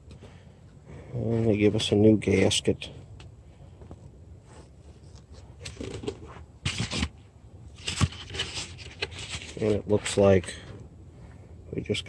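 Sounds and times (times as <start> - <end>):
packaging rustles and scrapes: 4.5 - 10.2.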